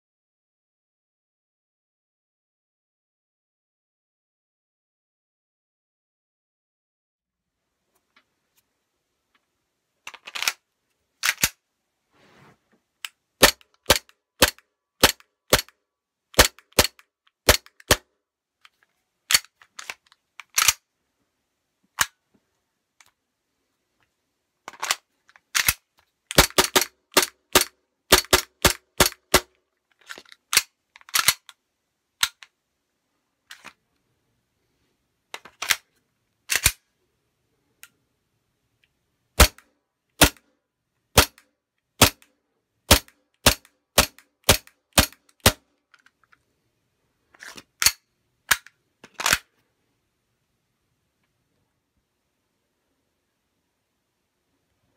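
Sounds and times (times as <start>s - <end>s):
airsoft pistol shots: 39.4s - 39.6s, 42.9s - 45.6s.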